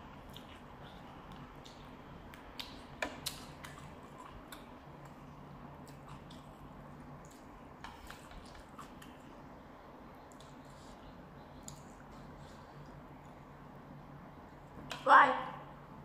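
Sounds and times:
chewing with wet mouth clicks: 0.2 - 5.2, 5.8 - 6.6, 7.2 - 9.3, 10.2 - 10.6.

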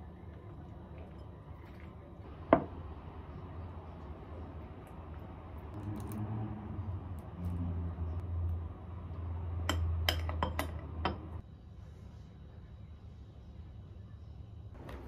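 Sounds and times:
low steady hum: 0.0 - 15.0
metal spoon clinking on ceramic bowl: 9.7 - 11.4.

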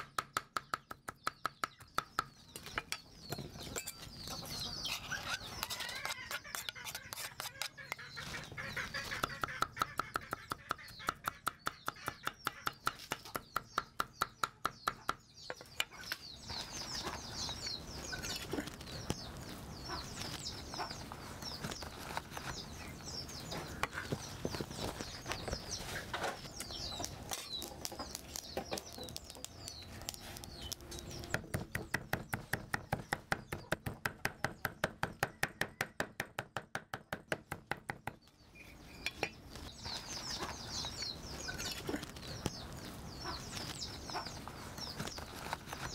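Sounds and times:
small birds chirping: 0.0 - 45.9
chickens clucking: 1.8 - 14.2, 15.0 - 33.8, 38.7 - 45.9
cleaver chopping on a board: 31.3 - 38.2.

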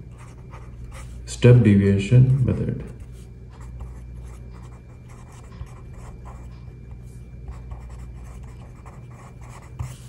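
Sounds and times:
low steady hum: 0.0 - 10.0
pen scratching on paper: 0.1 - 1.2, 3.0 - 10.0.

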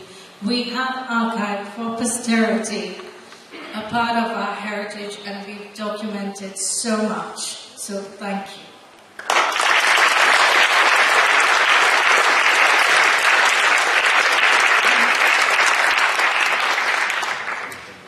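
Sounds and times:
audience applauding: 9.2 - 18.0.

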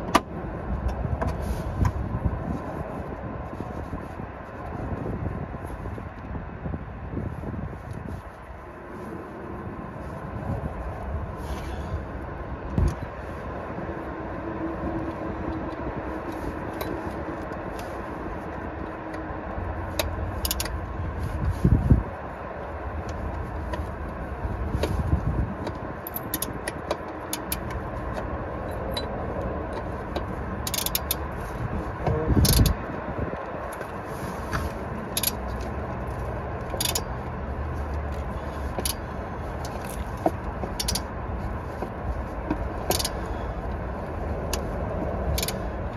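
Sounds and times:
low background rumble: 0.0 - 45.9
metallic clicks and scrapes: 14.8 - 21.9, 22.9 - 45.9.

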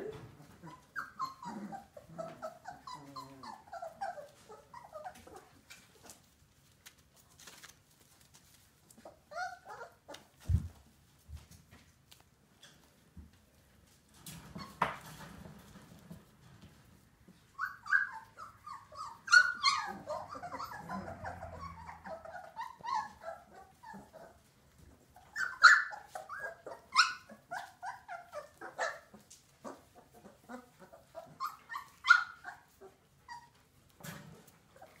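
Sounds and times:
puppies yelping and whining: 0.1 - 6.4, 8.2 - 10.8, 14.4 - 15.0, 17.3 - 35.0.

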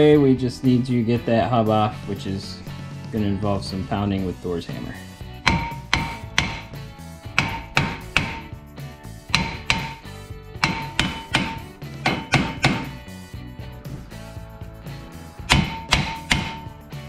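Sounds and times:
sledge hammer striking metal hub: 5.4 - 6.8, 7.4 - 8.6, 9.3 - 13.1, 15.5 - 16.8.

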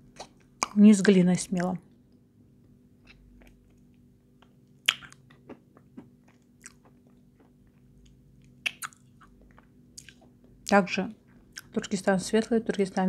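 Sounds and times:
quiet chewing: 3.0 - 10.4, 11.5 - 11.9.

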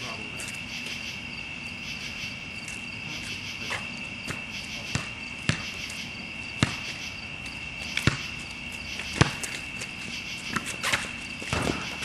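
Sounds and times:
crickets chirring: 0.0 - 12.0
basketball bouncing: 4.2 - 9.6, 10.5 - 12.0.

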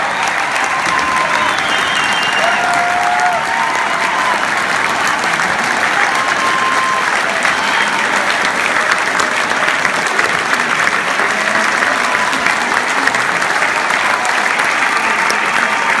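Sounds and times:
audience applauding: 0.0 - 16.0.

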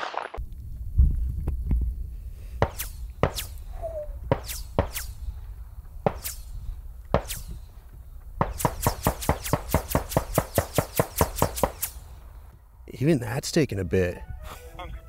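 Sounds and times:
sharp gunshot snaps: 2.6 - 3.6, 4.3 - 5.2, 6.0 - 7.6, 8.4 - 12.0.

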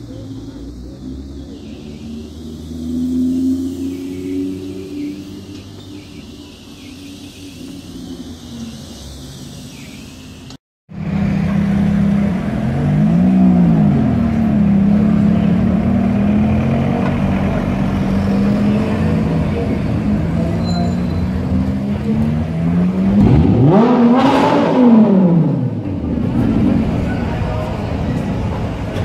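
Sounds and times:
sports car engine revving: 11.1 - 20.6, 21.3 - 28.2.

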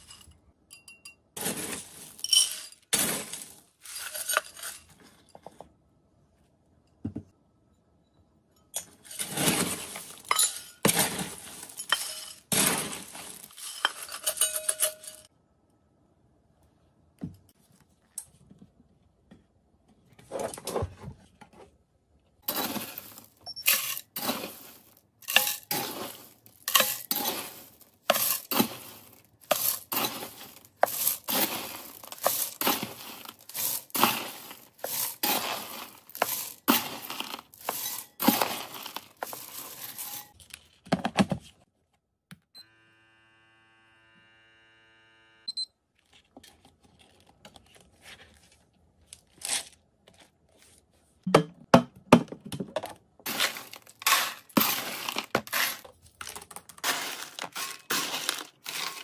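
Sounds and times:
dry food pellets poured rattling: 22.5 - 40.4, 53.3 - 59.0.

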